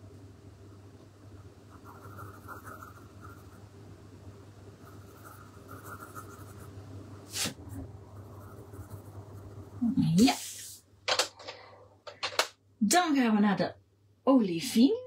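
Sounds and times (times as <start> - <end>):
pencil scratching on paper: 1.7 - 3.6, 4.8 - 6.7, 8.2 - 9.5.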